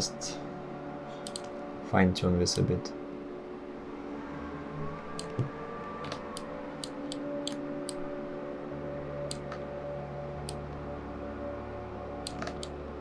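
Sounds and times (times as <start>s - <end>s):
steady background hum: 0.0s - 13.0s
computer mouse clicks: 1.2s - 1.5s, 5.2s - 8.0s, 12.2s - 12.8s.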